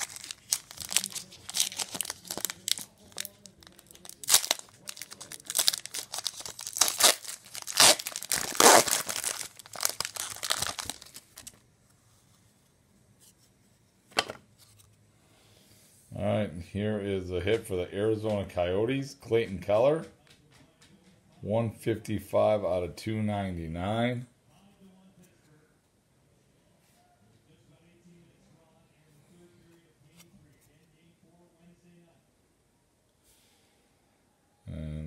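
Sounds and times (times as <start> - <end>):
foil wrapper crinkling: 0.0 - 11.6.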